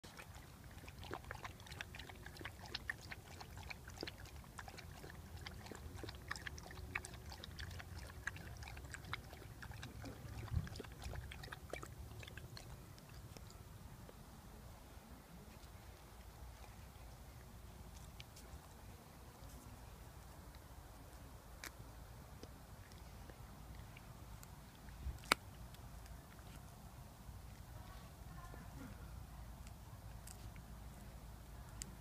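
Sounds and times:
dog lapping water: 0.0 - 13.7.

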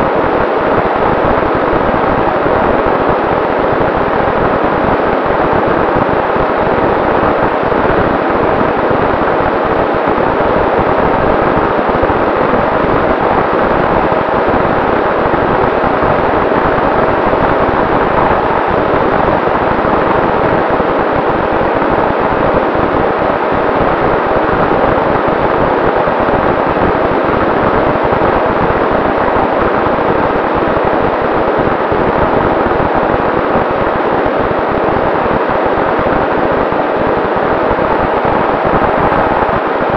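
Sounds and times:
rush of airflow: 29.2 - 39.9.

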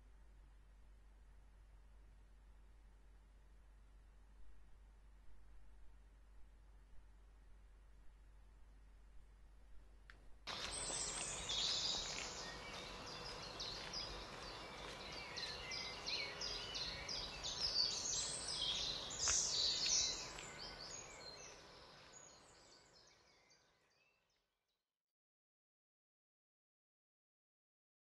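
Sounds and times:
outdoor background noise: 0.0 - 24.4
birds chirping: 10.5 - 24.2.

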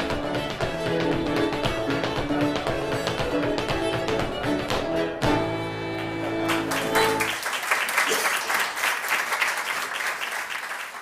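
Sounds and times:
music with held notes: 0.0 - 7.4
crowd applause: 6.4 - 11.0.

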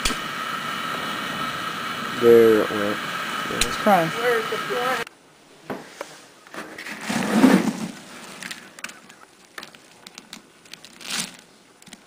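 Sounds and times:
rustling scrape: 5.8 - 8.8, 10.8 - 11.5.

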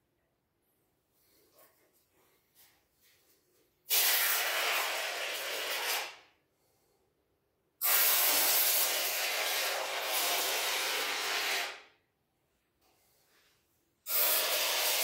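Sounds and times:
foam hissing from applicator gun: 14.1 - 15.0.

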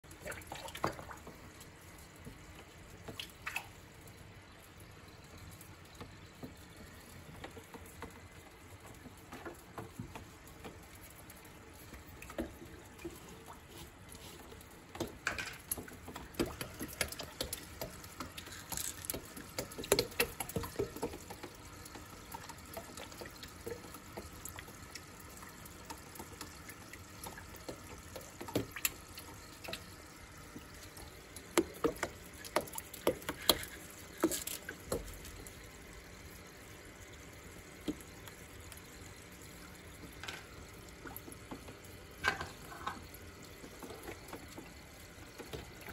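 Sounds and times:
water trickling and bubbling: 0.0 - 45.9
small splashes and taps: 0.1 - 45.9.

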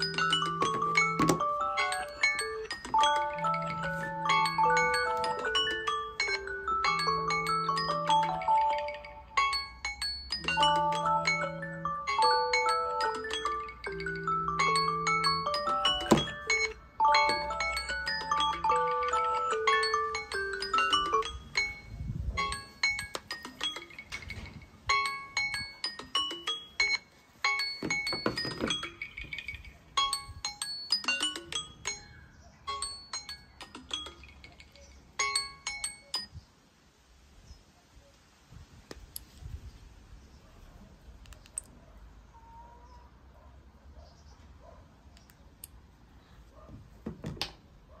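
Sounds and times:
phone alarm chiming melody: 0.0 - 36.3
phone knocking on wooden table: 27.8 - 28.9.

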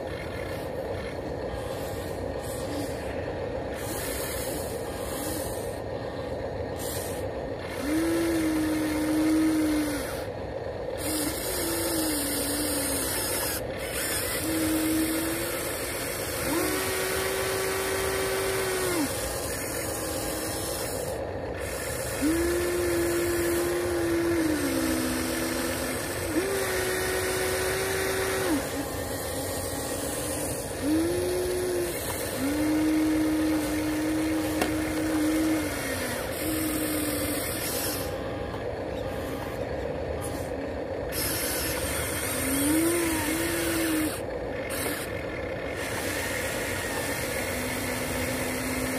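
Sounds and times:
electric motors whining: 0.0 - 48.9.

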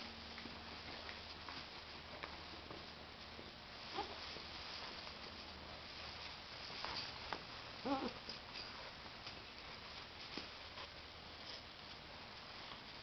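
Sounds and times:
light clicks and rustles: 0.3 - 13.0
puppy yelp: 7.8 - 8.2.

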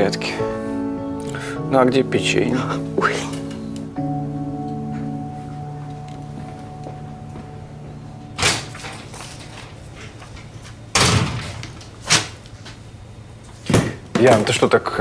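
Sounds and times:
door opening and closing: 8.4 - 9.8.

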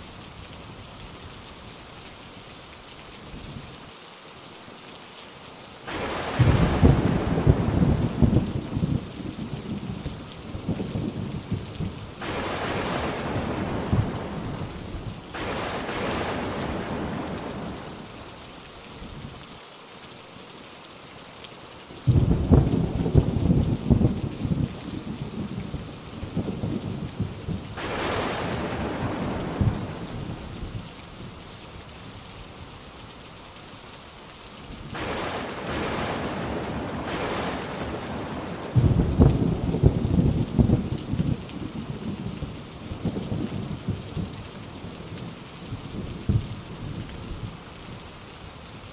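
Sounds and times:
heavy rain: 0.0 - 48.9
rolling thunder: 5.9 - 9.1, 10.6 - 18.0, 22.1 - 25.6, 26.3 - 30.8, 34.9 - 42.1.

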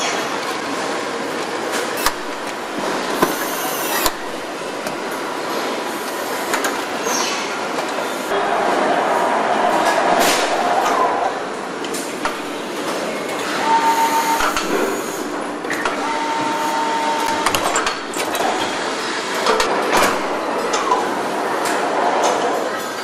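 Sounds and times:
factory mechanical din: 0.0 - 23.0
machine whine: 9.6 - 21.4.

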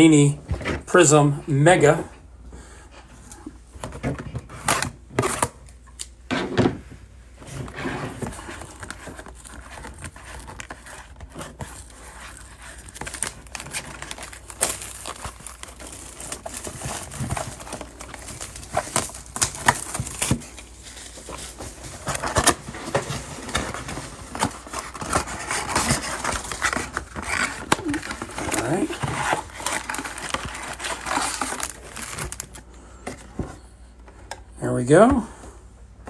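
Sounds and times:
plastic shrink wrap crinkling: 8.2 - 32.7.

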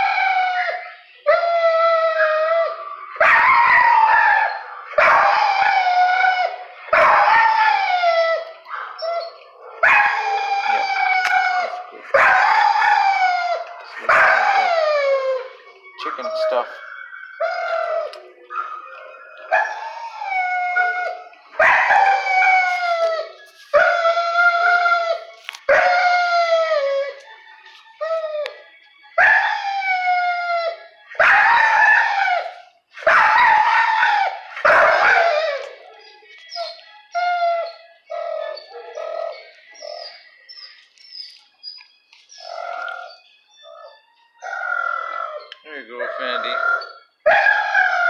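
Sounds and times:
dog howling: 0.0 - 27.3, 28.0 - 40.2, 42.4 - 48.0.

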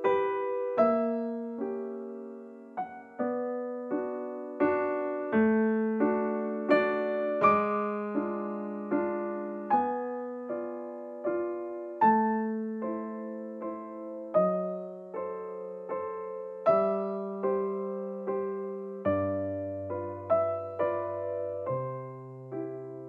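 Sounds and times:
slow solo piano: 0.0 - 23.0.

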